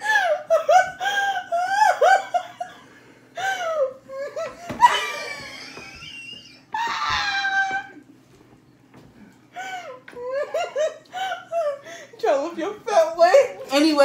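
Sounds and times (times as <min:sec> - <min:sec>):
women laughing: 0:00.0 - 0:08.0, 0:09.7 - 0:12.1.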